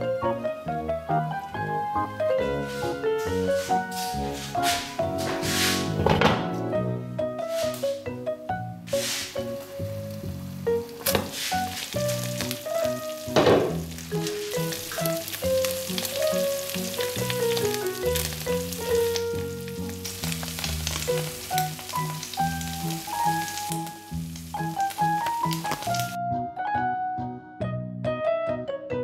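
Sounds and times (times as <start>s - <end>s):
background music melody: 0.0s - 29.0s
food sizzling in a frying pan: 8.9s - 26.2s
knocks: 13.4s - 13.8s.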